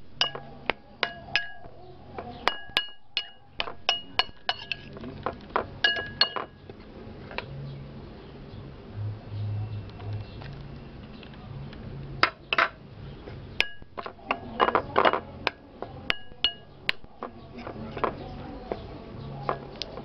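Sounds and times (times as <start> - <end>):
spoon clinking against ceramic bowl: 0.2 - 1.7, 2.4 - 4.9, 5.8 - 6.6, 16.1 - 18.1.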